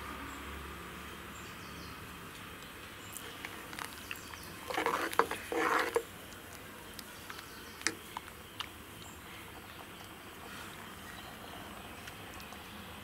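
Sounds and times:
ladle stirring thick dal: 3.3 - 6.1.

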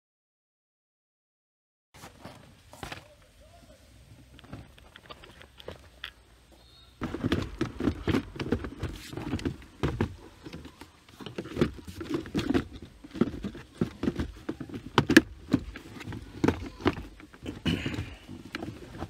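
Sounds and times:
items rustling in a glovebox: 4.3 - 19.0.

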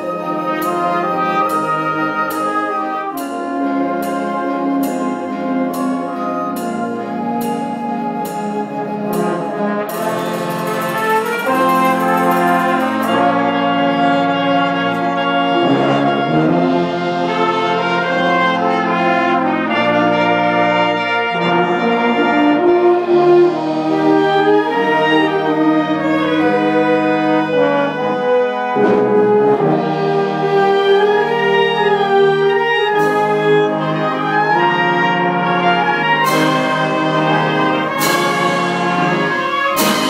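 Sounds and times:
percussion strikes and roll: 0.0 - 20.1, 32.4 - 40.0
concert band brass chords: 0.0 - 40.0.

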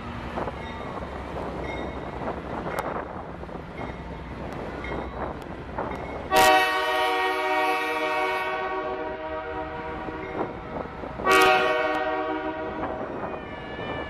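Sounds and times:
locomotive air horn blasts: 6.3 - 10.4, 11.2 - 13.8.

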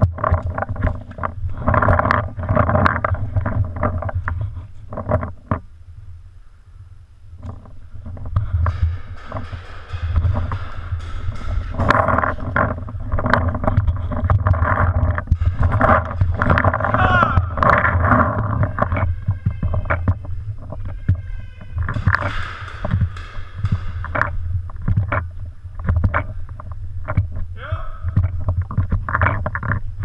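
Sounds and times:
wind noise: 0.0 - 30.0
sharp knocks: 7.4 - 27.3
muffled shouting voices: 16.8 - 17.8.

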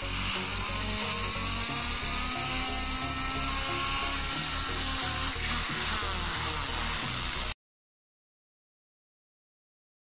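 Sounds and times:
background music: 0.0 - 7.5
compressed air hissing: 0.0 - 7.6.

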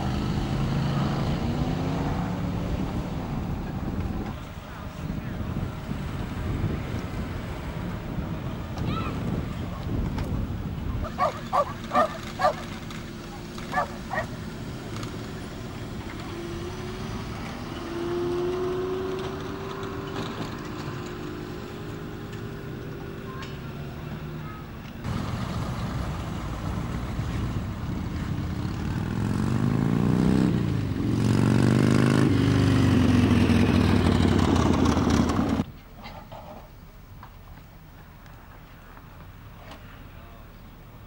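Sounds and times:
loud engine revving: 0.0 - 3.7, 11.1 - 23.2, 25.1 - 35.6
car engines driving past: 0.0 - 35.7.

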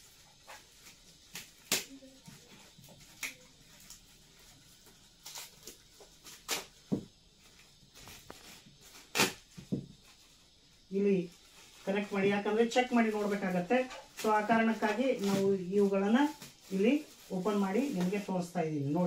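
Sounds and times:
plastic packaging clicks and crinkles: 0.0 - 10.2.

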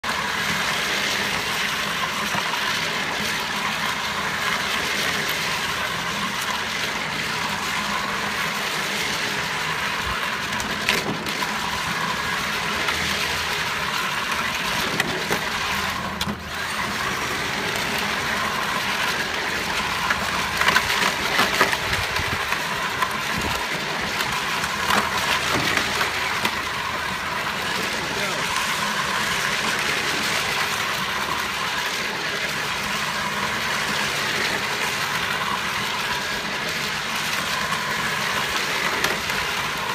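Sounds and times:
electric motor whine: 0.0 - 39.9
plastic wheels rumbling on pavement: 0.0 - 39.9.

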